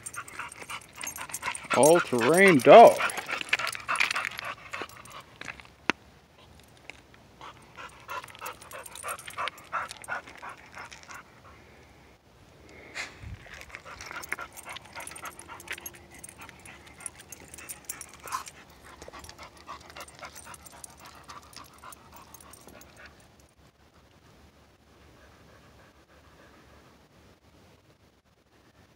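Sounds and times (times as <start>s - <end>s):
dog panting: 0.0s - 5.6s, 7.4s - 11.6s, 13.5s - 23.3s
footsteps on rocky ground: 0.0s - 5.8s, 13.3s - 22.6s.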